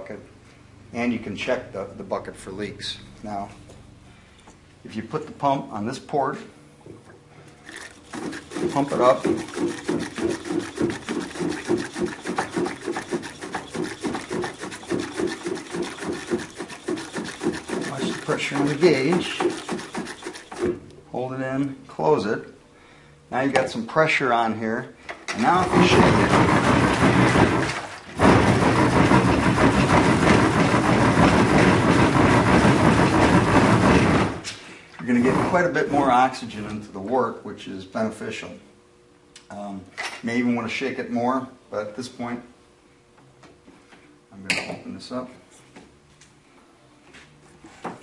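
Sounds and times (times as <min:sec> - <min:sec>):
hand air pump strokes: 0:07.6 - 0:20.8, 0:25.4 - 0:35.6
liquid sloshing in shaken container: 0:07.6 - 0:20.8, 0:25.4 - 0:34.4.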